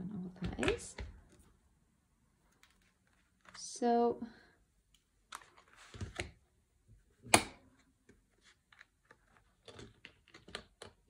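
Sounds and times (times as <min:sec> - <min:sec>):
small paper clicks and taps: 0:07.4 - 0:11.0.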